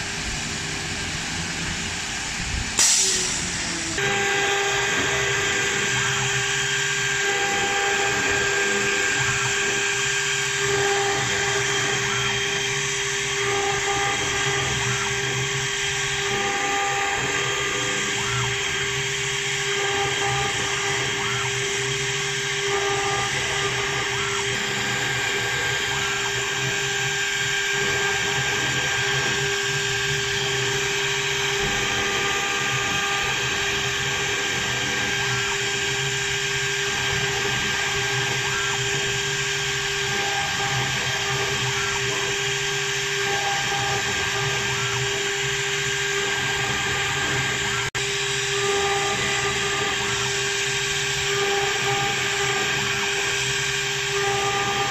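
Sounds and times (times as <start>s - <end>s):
spindle whine: 0.0s - 54.9s
hiss of bit cutting wood: 0.6s - 54.9s.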